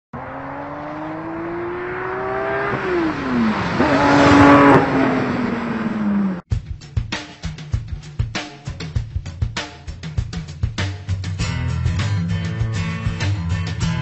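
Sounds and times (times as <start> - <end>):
car engine revving: 0.1 - 6.5.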